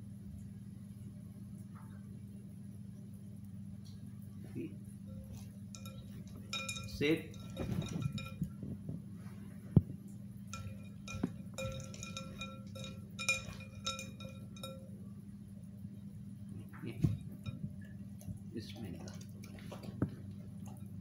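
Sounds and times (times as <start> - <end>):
steady low hum: 0.0 - 21.0
knife clinking against bowl: 5.1 - 8.5, 10.5 - 14.9.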